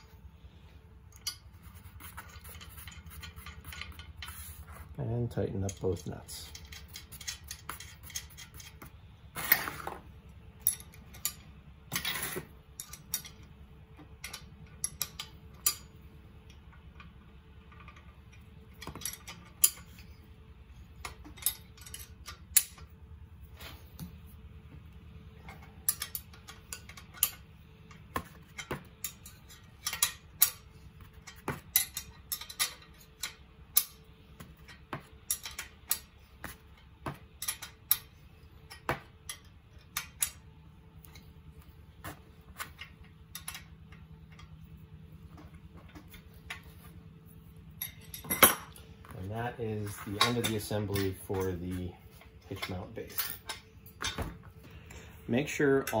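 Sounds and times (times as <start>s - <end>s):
wrenches clinking on metal: 1.1s - 10.0s, 10.6s - 16.0s, 16.8s - 20.3s, 20.9s - 23.0s, 25.4s - 46.8s, 47.7s - 54.4s
metal scrapes: 1.3s - 5.0s, 6.4s - 10.0s.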